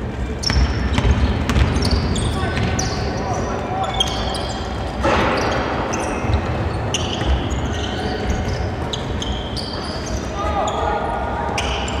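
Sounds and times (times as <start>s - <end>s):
basketball bouncing: 0.4s - 2.8s
sneakers squeaking on hardwood: 0.4s - 10.9s.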